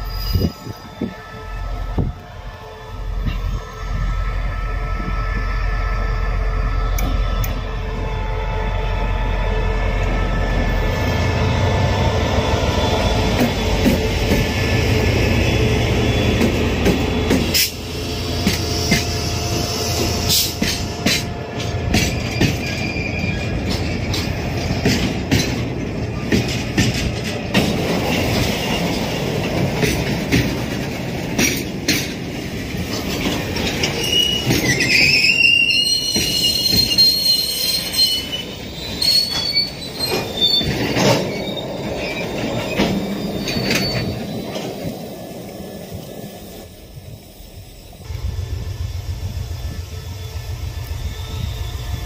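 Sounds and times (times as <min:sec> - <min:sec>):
high-pitched wheel squeal: 0:00.0 - 0:01.6, 0:22.0 - 0:23.8, 0:33.9 - 0:44.9, 0:49.8 - 0:52.0
train wheels clicking over rail joints: 0:13.1 - 0:49.8.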